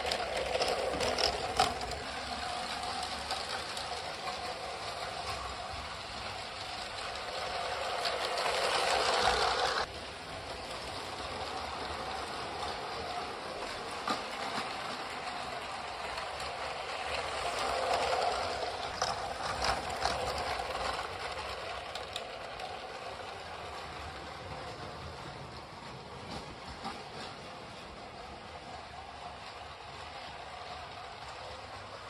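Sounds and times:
small electric motors whirring: 0.0 - 9.9
toy train wheels clicking on track: 0.0 - 32.0.

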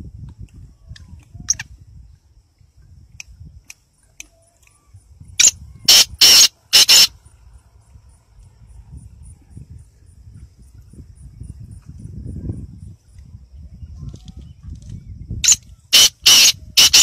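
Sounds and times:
bird harsh grating call: 5.4 - 7.2, 15.4 - 17.0.

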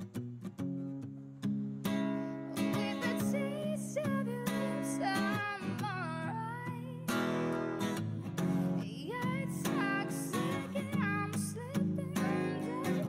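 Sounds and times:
strummed acoustic guitar: 0.0 - 13.0
person singing: 2.5 - 7.3, 8.6 - 13.0.

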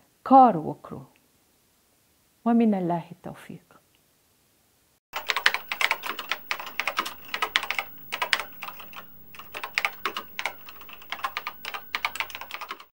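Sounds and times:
keyboard typing clatter: 5.2 - 12.9.

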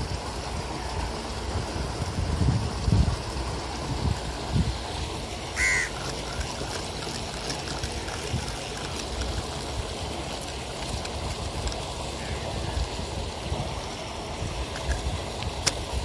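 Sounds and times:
steady background noise: 0.0 - 16.0
crow cawing: 5.6 - 6.0.

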